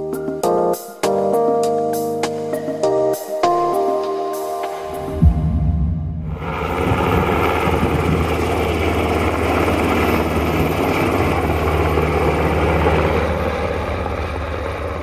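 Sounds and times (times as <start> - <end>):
helicopter rotor and turbine noise: 2.1 - 15.0.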